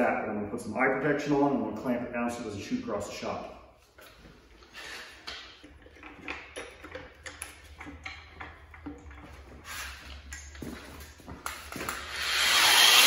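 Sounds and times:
metal knocking and scraping: 0:05.1 - 0:11.8.

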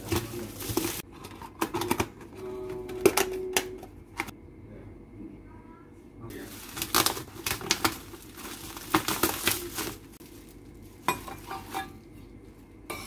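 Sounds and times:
plastic wrapping crinkling: 0:00.0 - 0:01.1, 0:06.4 - 0:11.9.

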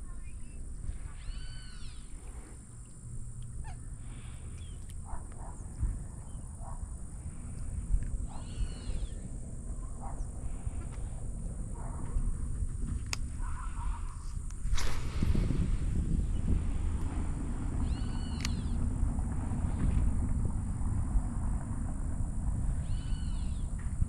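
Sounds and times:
steady high hiss: 0:00.0 - 0:05.1, 0:06.1 - 0:23.8
steady low rumble: 0:00.0 - 0:24.0
arched bird call: 0:00.1 - 0:02.2, 0:08.3 - 0:09.2, 0:17.8 - 0:18.8, 0:22.8 - 0:23.7
short bird chirps: 0:00.3 - 0:02.1.

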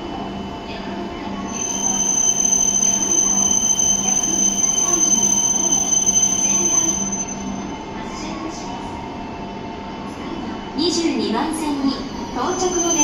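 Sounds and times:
train moving along platform: 0:00.0 - 0:13.0
steady high-pitched squeal: 0:01.5 - 0:08.6, 0:11.9 - 0:13.0.

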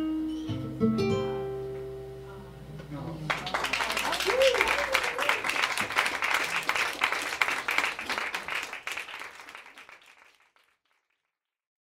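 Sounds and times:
audience applauding: 0:03.2 - 0:11.3.

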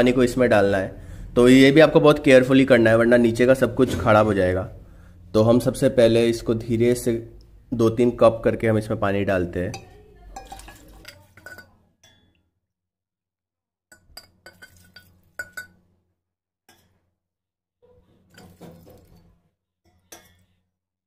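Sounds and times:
ceramic cup clinking: 0:09.7 - 0:12.3, 0:13.9 - 0:15.8
water pouring into bowl: 0:10.4 - 0:11.6, 0:14.5 - 0:15.6.

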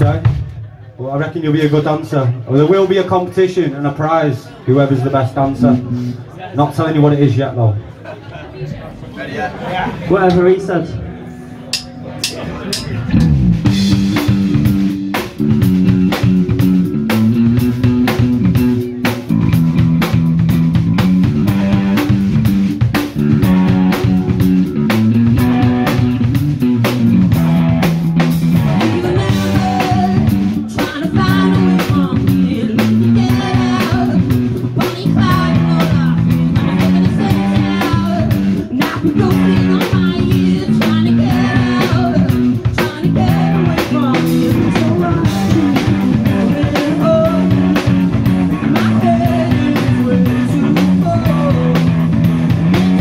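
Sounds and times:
drum kit beat: 0:00.0 - 0:00.7, 0:11.7 - 0:53.0
bass guitar: 0:00.0 - 0:06.9, 0:09.6 - 0:53.0
electric guitar: 0:10.9 - 0:53.0
person singing: 0:28.5 - 0:52.2.

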